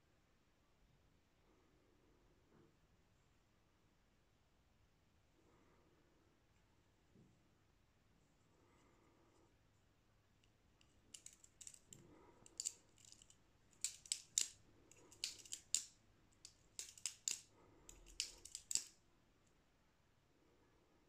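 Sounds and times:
butterfly knife clacking: 11.2 - 19.0.

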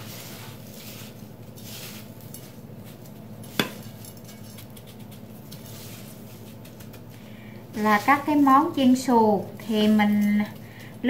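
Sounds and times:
breadcrumbs rustling and crunching: 0.0 - 11.0.

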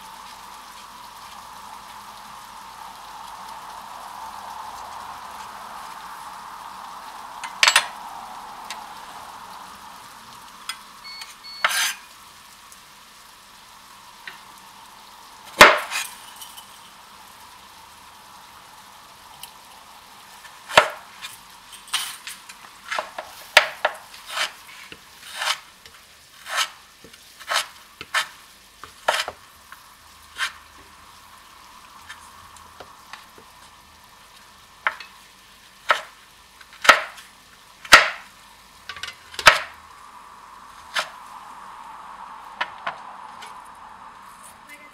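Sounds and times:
knife cutting on wooden board: 24.3 - 24.5, 25.3 - 25.6, 26.4 - 26.7.

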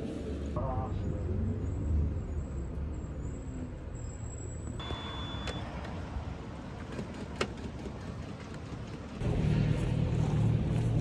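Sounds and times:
bus engine and road rumble: 0.0 - 11.0
short electronic beep: 4.8 - 5.7.

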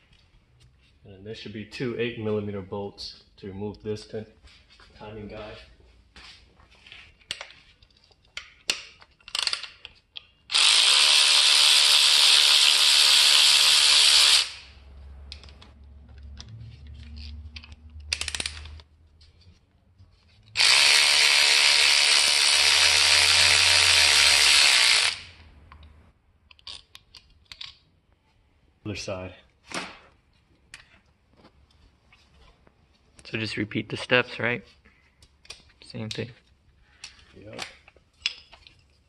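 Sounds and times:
electric ratchet running: 10.5 - 14.8, 20.6 - 25.4.

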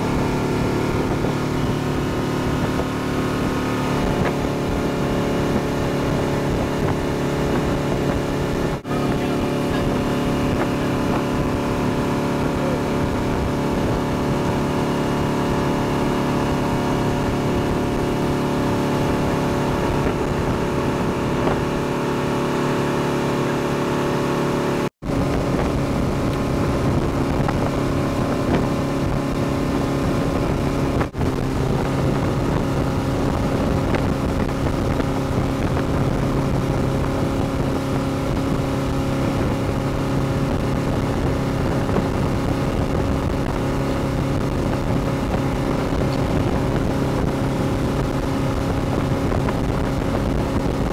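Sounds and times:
motorboat engine humming: 0.0 - 50.9
wake water rushing: 0.0 - 50.9
wind rushing: 0.0 - 50.9.

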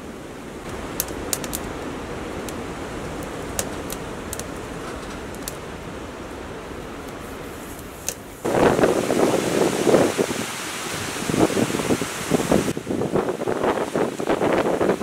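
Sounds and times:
strong wind buffeting tent: 0.0 - 15.0
sharp light clicks: 0.7 - 2.6.

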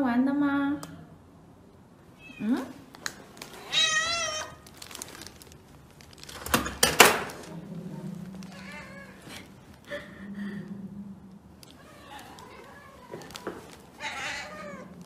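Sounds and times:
cat meowing: 2.2 - 2.7, 3.6 - 4.7, 8.4 - 9.4, 11.8 - 15.0.

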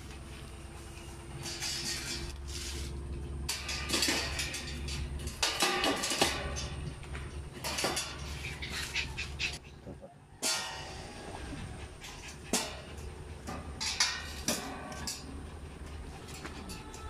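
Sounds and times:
steady low hum: 0.0 - 17.0
metal cage panels clinking: 3.0 - 9.6, 12.3 - 15.5.

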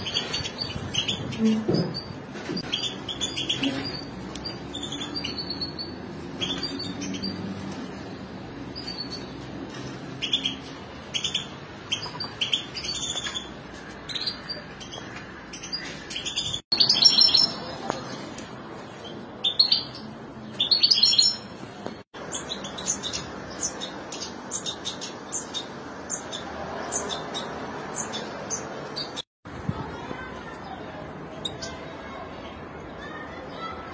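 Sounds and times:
finches chirping: 0.0 - 7.4.

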